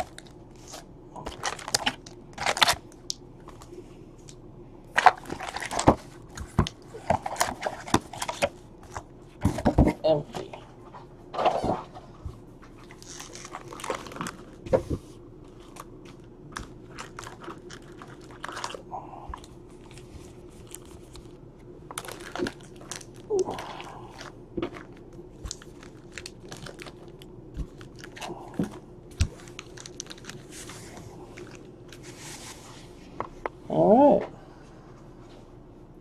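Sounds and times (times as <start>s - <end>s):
foil card packs crinkling: 0.0s - 3.7s, 4.9s - 10.0s, 12.7s - 14.7s, 15.4s - 32.1s.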